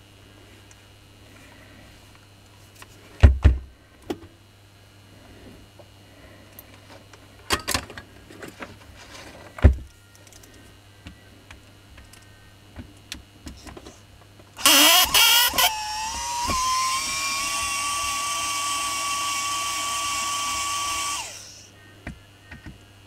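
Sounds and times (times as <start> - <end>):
hammer drill motor whining: 14.6 - 21.7.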